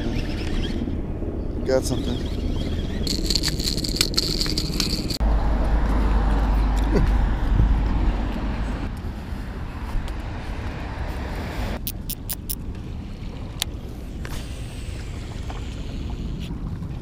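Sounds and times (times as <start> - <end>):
sharp clicks: 11.8 - 12.6.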